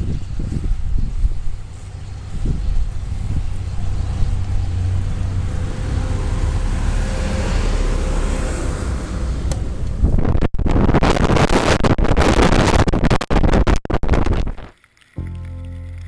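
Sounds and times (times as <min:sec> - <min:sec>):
snowcat engine rumbling: 0:00.0 - 0:10.1
wind buffeting microphone: 0:00.0 - 0:14.7.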